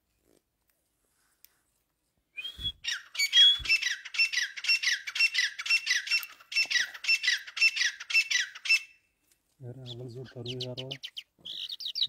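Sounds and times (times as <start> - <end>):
bird calling sharp sliding notes: 2.4 - 9.0.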